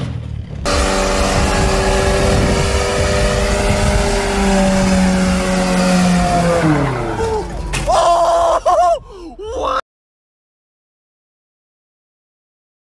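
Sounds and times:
road and wind noise: 0:00.0 - 0:09.4
vehicle engine drone: 0:00.0 - 0:09.4.

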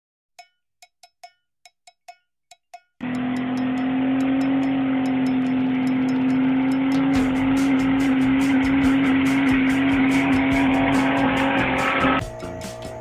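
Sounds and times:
fast ticking beat: 0:00.4 - 0:13.0
sharp ticks: 0:00.4 - 0:13.0
car engine revving high: 0:03.0 - 0:12.4.

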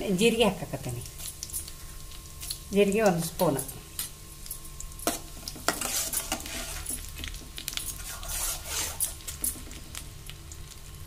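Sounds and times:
seeds sizzling in hot oil: 0:00.0 - 0:11.0
steel spoon scraping pan: 0:05.7 - 0:07.0, 0:08.0 - 0:09.2.

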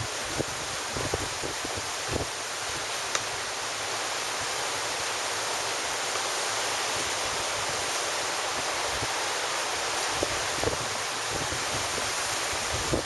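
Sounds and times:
ocean surf breaking: 0:00.0 - 0:13.0
small click: 0:03.1 - 0:03.3.

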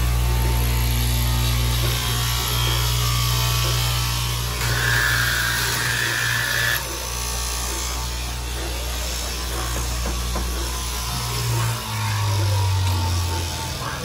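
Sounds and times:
blade cutting through fabric: 0:00.0 - 0:14.0
cloth cutting machine motor hum: 0:00.0 - 0:14.0.

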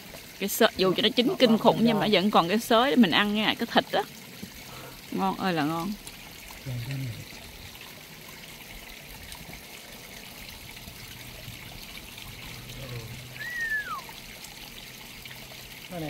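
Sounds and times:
trickle of running water: 0:00.0 - 0:16.0
whistled note sliding down: 0:13.4 - 0:14.1.

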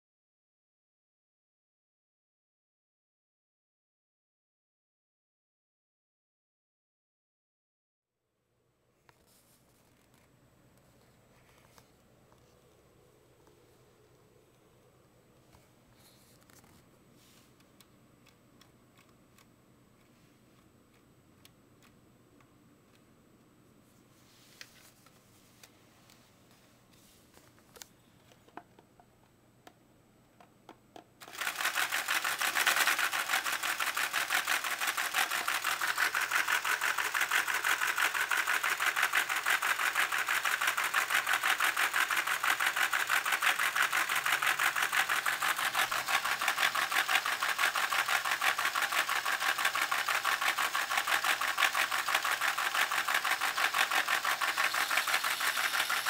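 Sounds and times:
toy engine clattering: 0:31.2 - 0:56.0.

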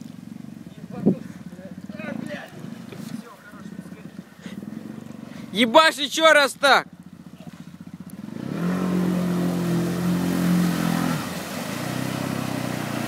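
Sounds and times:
wheels churning through water: 0:00.0 - 0:13.0
atv engine revving: 0:00.2 - 0:13.0.

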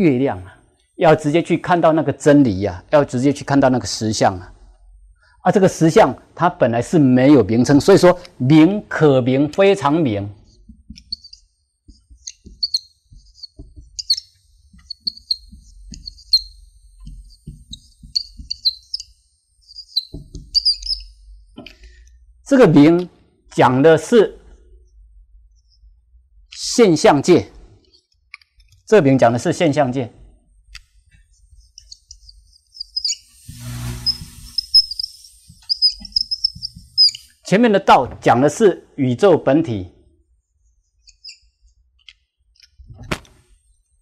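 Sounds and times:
marker squeaking on whiteboard: 0:10.4 - 0:21.7, 0:30.6 - 0:37.4, 0:40.6 - 0:41.8
small birds chirping: 0:11.0 - 0:21.2, 0:31.4 - 0:37.4, 0:40.9 - 0:41.6.

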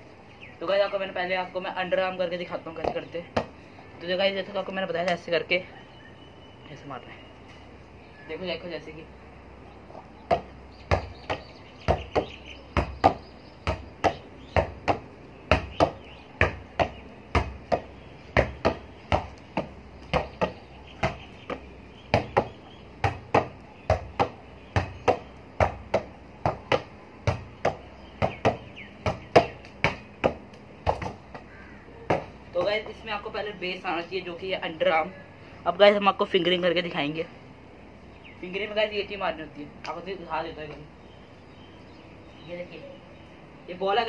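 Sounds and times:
volleyball slapping off forearms: 0:10.3 - 0:31.5.

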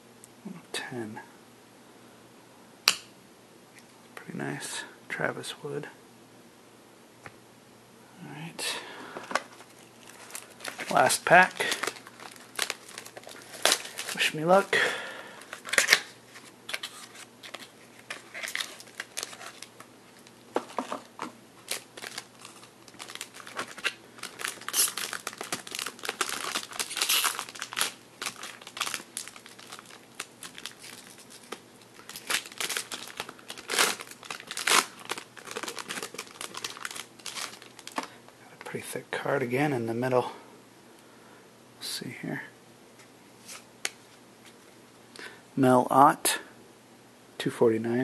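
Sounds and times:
foil wrapper crinkling and tearing: 0:09.6 - 0:38.2.

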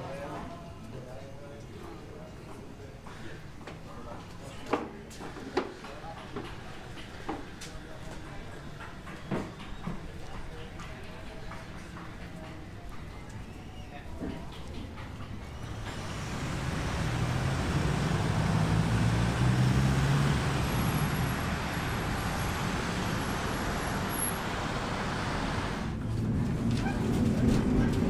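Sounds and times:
road vehicle rushing past: 0:15.4 - 0:28.0.

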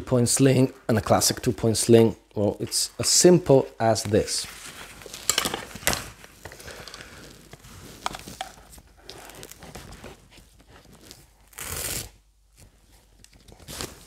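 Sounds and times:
nylon strap rustling and rasping: 0:04.5 - 0:14.0.

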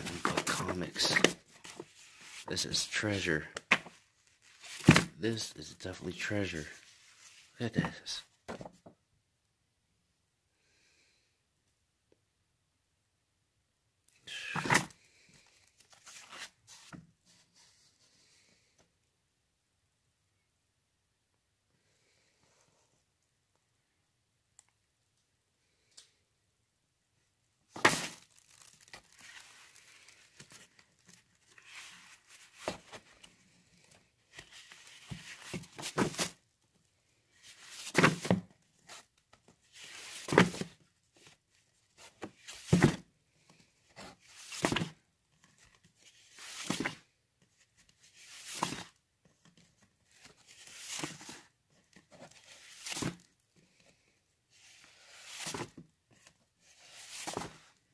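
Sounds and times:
comic books flipped and shuffled: 0:00.0 - 0:08.9, 0:14.3 - 0:18.4, 0:27.7 - 0:57.9.

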